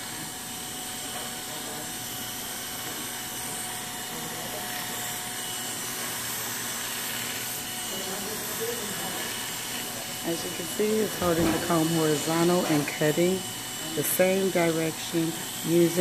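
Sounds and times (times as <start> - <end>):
electric hair clipper running: 0.0 - 16.0.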